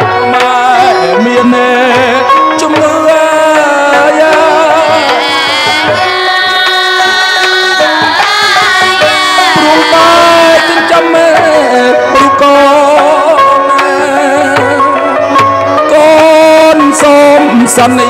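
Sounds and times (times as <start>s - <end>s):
hand drums: 0.0s - 18.0s
instrumental accompaniment: 0.0s - 18.0s
person singing ornamented melody: 0.0s - 18.0s.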